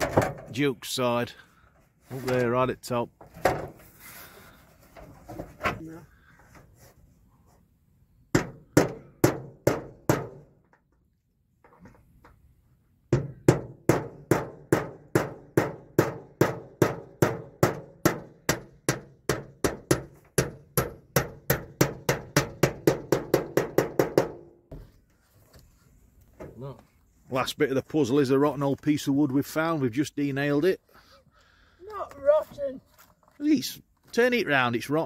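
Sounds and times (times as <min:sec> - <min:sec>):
hammer striking metal sheet: 0:13.1 - 0:24.5.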